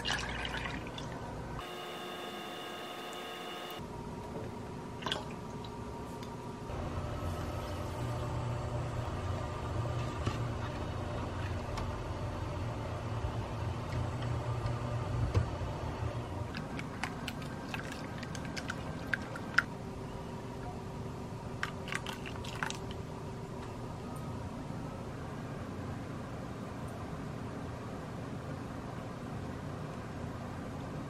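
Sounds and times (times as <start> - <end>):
liquid pouring: 0.0 - 1.2, 16.6 - 19.6, 21.6 - 22.9
induction cooktop hum: 0.0 - 31.0.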